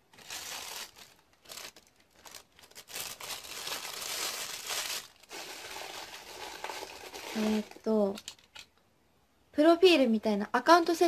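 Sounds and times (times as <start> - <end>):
rustling handling noise: 0.0 - 8.8.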